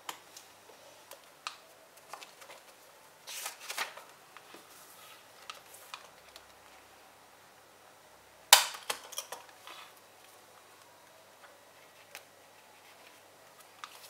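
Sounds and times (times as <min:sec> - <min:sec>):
pages rustling: 0:01.9 - 0:06.8, 0:11.7 - 0:14.0.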